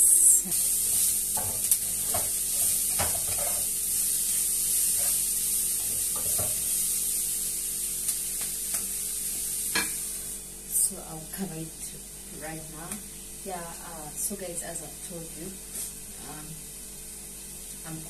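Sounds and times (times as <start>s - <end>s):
food sizzling in a frying pan: 0.0s - 18.0s.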